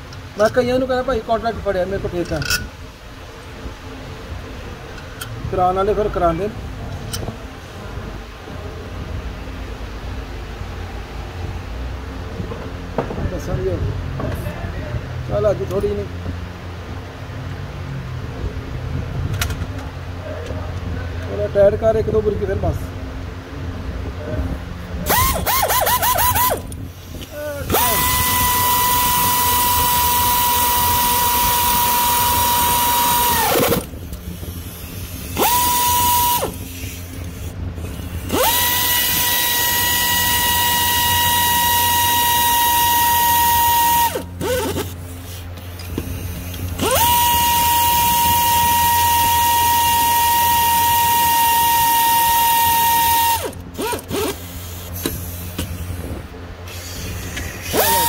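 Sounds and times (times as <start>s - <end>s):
air ratchet whining: 25.0s - 58.0s.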